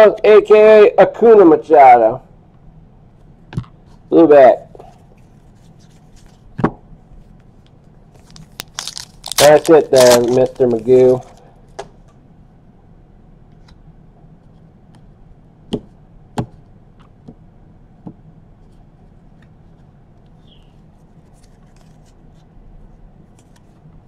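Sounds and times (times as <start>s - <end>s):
low steady hum: 0.0s - 24.0s
cards rustling: 8.2s - 11.5s.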